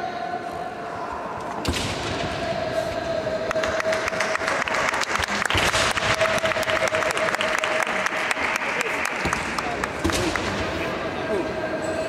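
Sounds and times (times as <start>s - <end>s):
spectators applauding: 3.4s - 10.6s.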